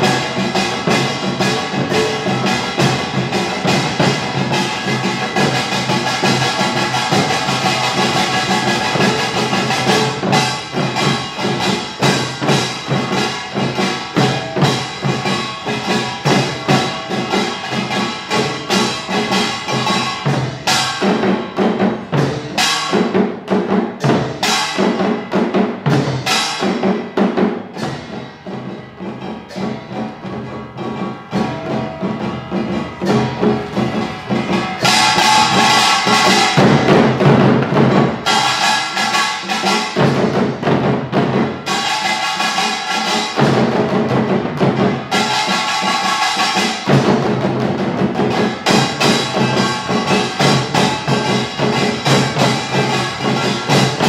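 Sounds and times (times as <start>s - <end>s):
percussion ensemble drumming: 0.0s - 54.0s
gongs ringing: 27.8s - 40.1s.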